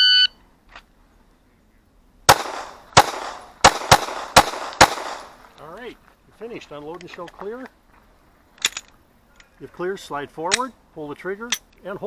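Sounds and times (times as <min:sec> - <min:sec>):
pistol shots with echo: 0:02.3 - 0:05.4.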